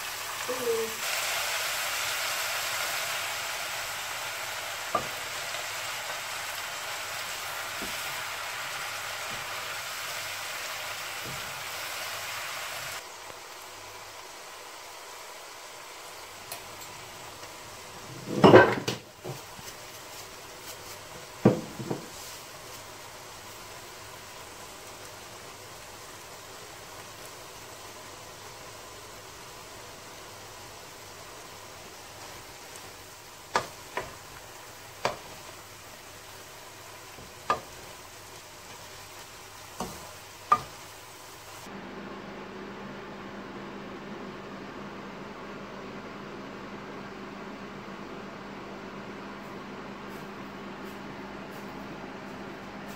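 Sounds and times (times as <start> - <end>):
faint steady hiss: 0.0 - 41.7
greens sizzling in a wok: 0.0 - 41.8
wooden spatula knocking on pan: 21.4 - 22.1.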